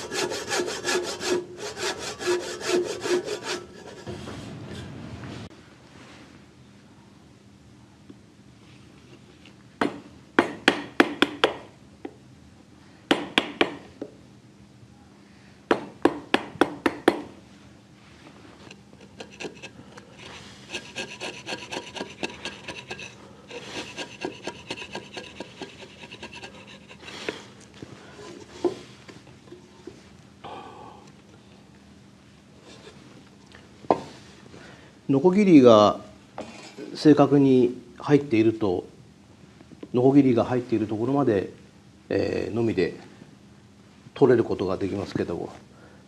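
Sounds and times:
chisel scraping wood: 0:00.0 - 0:04.3, 0:18.6 - 0:27.4
hammer striking chisel into wood: 0:09.8 - 0:11.7, 0:13.1 - 0:13.8, 0:15.7 - 0:17.3.

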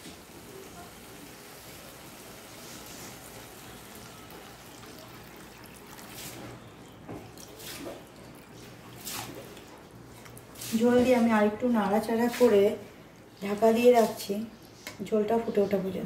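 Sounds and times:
water pouring into frying pan: 0:00.0 - 0:09.8.

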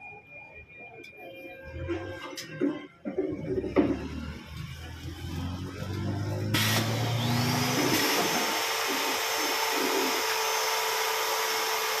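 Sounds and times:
high machine whine: 0:00.0 - 0:12.0.

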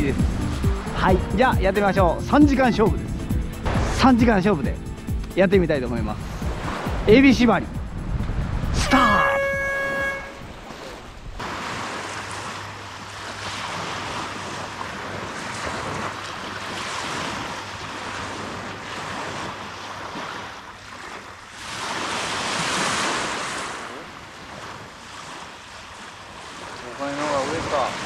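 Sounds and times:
wind on microphone: 0:06.1 - 0:11.7
small waves washing on shore: 0:06.2 - 0:07.6, 0:08.2 - 0:28.0.

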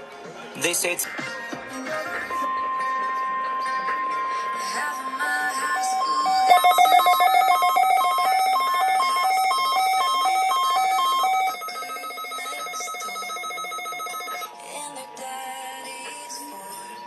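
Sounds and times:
weather radio trilling alarm: 0:04.4 - 0:15.2.

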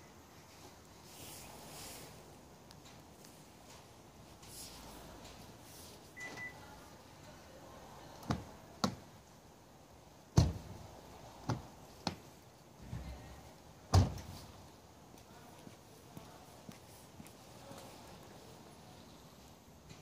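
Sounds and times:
car alarm beep: 0:06.2 - 0:06.6
door lock clicks and thuds: 0:10.4 - 0:10.7, 0:13.9 - 0:14.3.

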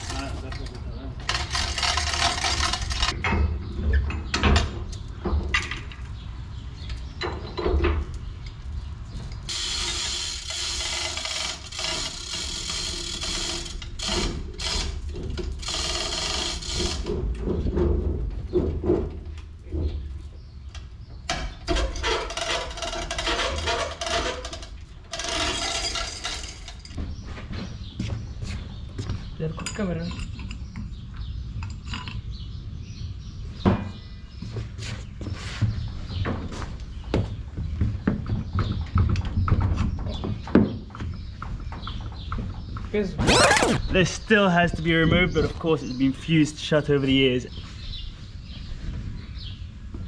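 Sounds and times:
chain rattling through hoist: 0:01.2 - 0:03.2, 0:09.5 - 0:15.0, 0:22.1 - 0:27.0.

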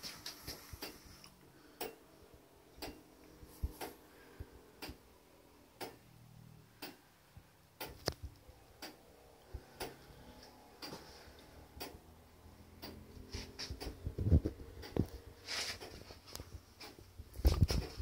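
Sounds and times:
clock ticking: 0:01.8 - 0:02.0, 0:02.7 - 0:03.1, 0:04.8 - 0:05.2, 0:05.8 - 0:06.1, 0:06.8 - 0:07.0, 0:07.8 - 0:15.2, 0:15.8 - 0:17.1.

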